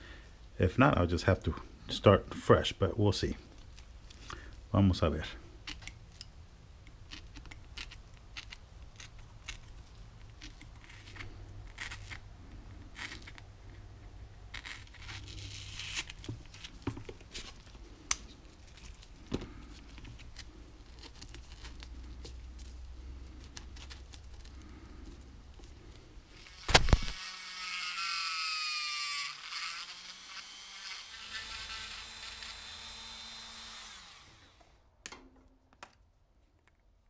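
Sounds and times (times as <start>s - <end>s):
tool scraping foam: 10.3s - 13.4s, 14.5s - 16.8s.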